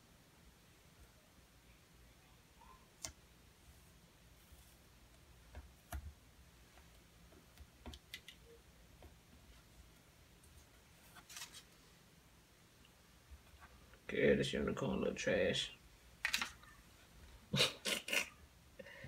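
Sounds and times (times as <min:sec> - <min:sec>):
faint clicks and taps: 0:05.1 - 0:09.6
crinkle: 0:10.5 - 0:11.8.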